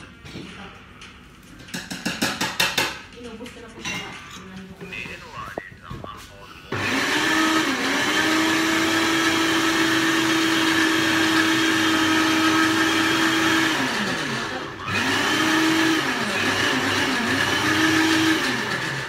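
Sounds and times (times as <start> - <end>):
blender motor running: 6.7 - 19.0.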